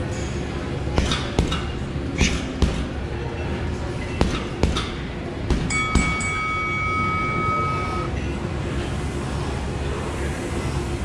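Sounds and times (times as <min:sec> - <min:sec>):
boxing gloves hitting heavy bag: 0:00.9 - 0:03.0, 0:04.1 - 0:06.4
timer bell tone: 0:05.7 - 0:08.1.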